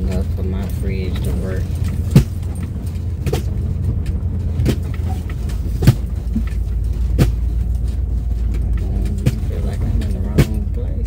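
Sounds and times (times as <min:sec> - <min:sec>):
motorhome engine rumbling: 0:00.0 - 0:11.0
sharp knocks: 0:02.0 - 0:03.6, 0:04.5 - 0:07.6.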